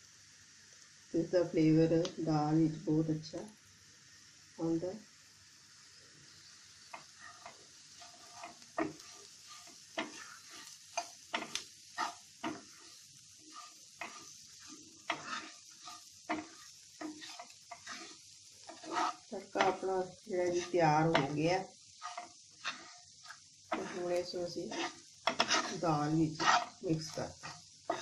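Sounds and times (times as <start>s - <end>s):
food sizzling in a frying pan: 0.0s - 28.0s
spatula scraping a pan: 6.3s - 28.0s.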